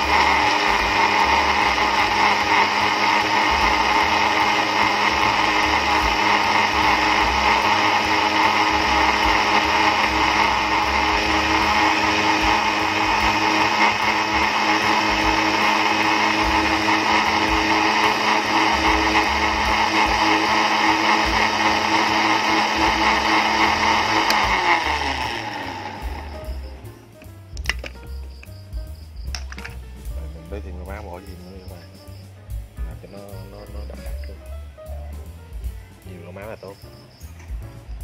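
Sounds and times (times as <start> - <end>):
electric blender running: 0.0 - 26.8.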